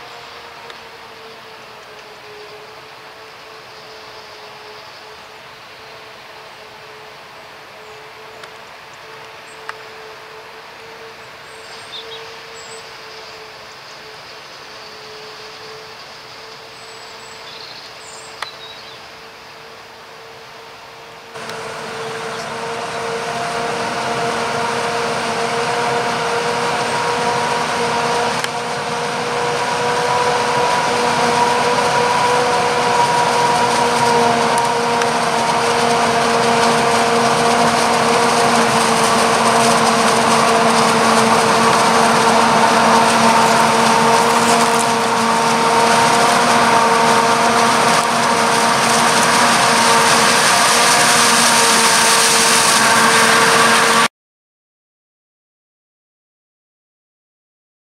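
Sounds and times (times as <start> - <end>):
forage harvester high whine: 0.0 - 54.1
tractor running: 21.2 - 54.1
rush of machinery: 21.4 - 54.1.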